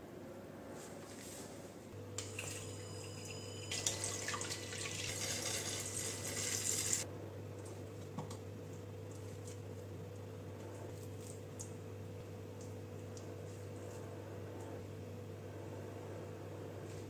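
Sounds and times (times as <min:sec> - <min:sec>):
water running: 0:02.2 - 0:07.0.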